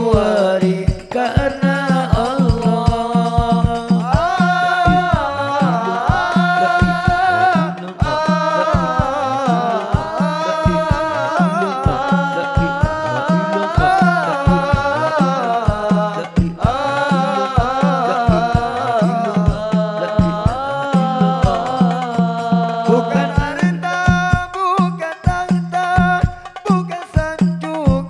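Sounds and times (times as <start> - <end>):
hand drum beat: 0.0 - 28.0
person singing devotional song: 0.0 - 28.0
held low accompanying tone: 4.9 - 15.4, 16.5 - 21.9.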